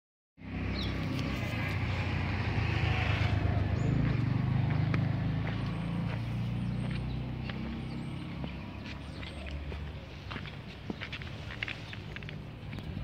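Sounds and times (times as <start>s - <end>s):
engine running with low hum: 0.4s - 13.0s.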